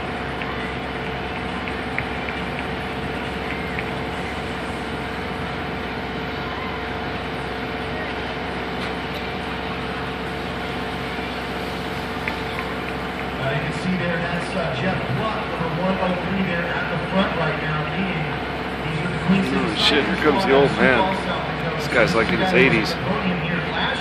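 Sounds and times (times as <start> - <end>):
humming drone: 0.0 - 24.0.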